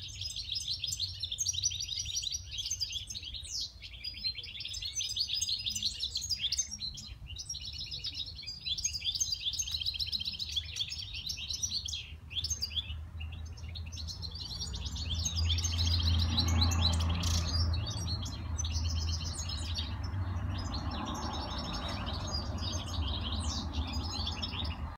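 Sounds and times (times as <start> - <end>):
songbird trilling: 0.0 - 24.9.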